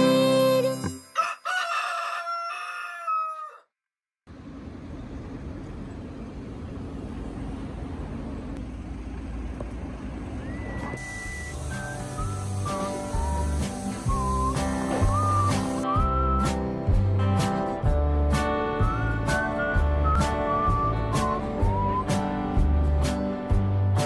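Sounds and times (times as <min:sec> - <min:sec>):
music: 0:00.0 - 0:01.2, 0:11.0 - 0:24.0
rooster crow sound effect: 0:01.1 - 0:03.7
traffic rumble: 0:04.3 - 0:15.4.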